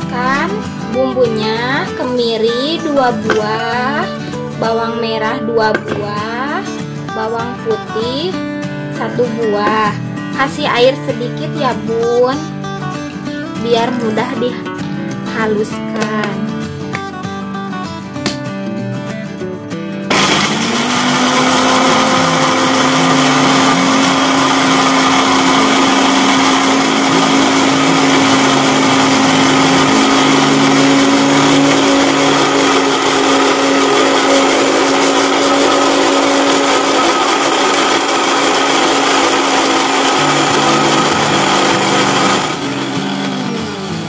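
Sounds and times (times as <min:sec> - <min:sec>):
blender running: 0:20.1 - 0:44.0.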